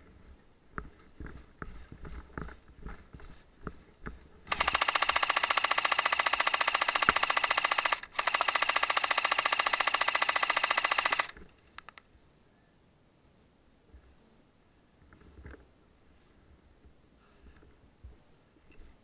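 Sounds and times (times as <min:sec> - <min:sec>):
airsoft rifle rapid bursts: 0:04.5 - 0:12.0.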